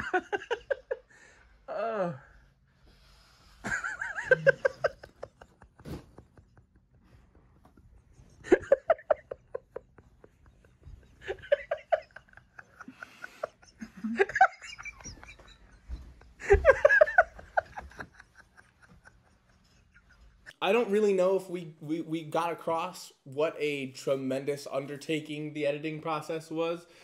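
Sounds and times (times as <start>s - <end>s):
people laughing: 0.0s - 1.1s, 3.7s - 7.4s, 8.4s - 20.5s.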